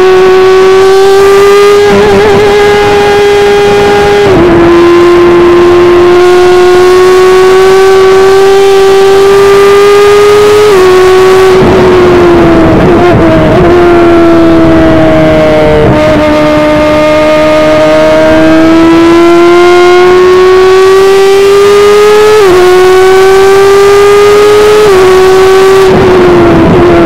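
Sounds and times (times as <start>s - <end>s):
race car engine at high revs: 0.0s - 27.0s.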